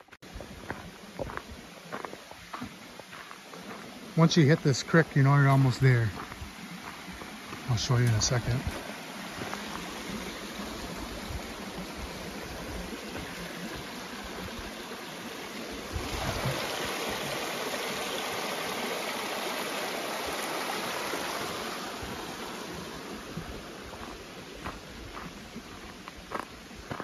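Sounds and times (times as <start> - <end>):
creek rushing over rocks: 0.0 - 27.0.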